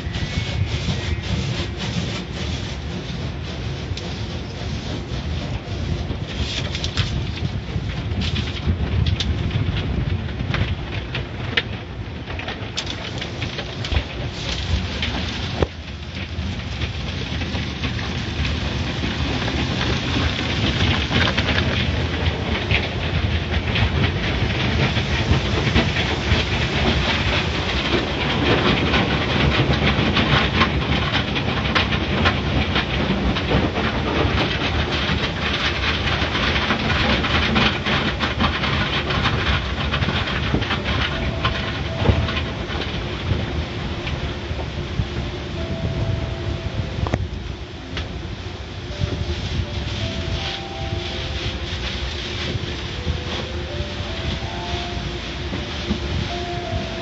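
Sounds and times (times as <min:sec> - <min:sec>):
car wash brushes scrubbing: 0:00.0 - 0:08.6, 0:12.8 - 0:42.6, 0:49.0 - 0:57.0
rushing water spray: 0:00.0 - 0:08.7, 0:12.8 - 0:31.0, 0:48.2 - 0:57.0.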